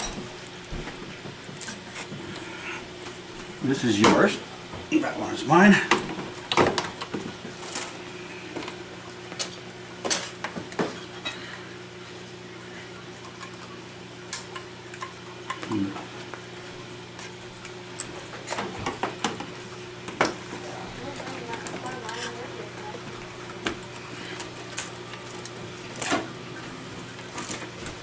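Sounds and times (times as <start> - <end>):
steady low hum: 0.0 - 28.0
clicks and rattles of handling wires: 21.0 - 22.4.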